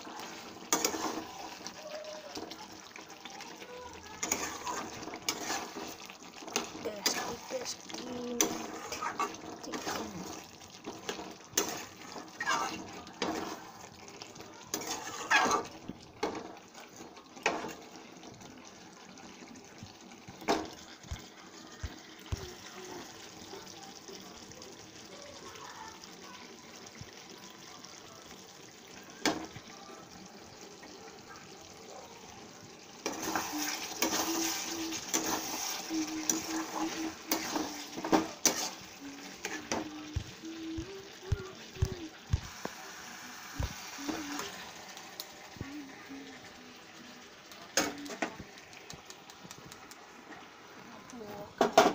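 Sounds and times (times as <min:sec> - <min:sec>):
metal spatula scraping a pan: 0:00.0 - 0:01.8, 0:04.1 - 0:13.8, 0:14.7 - 0:16.5, 0:33.0 - 0:39.9
food sizzling in a pan: 0:00.0 - 0:51.9.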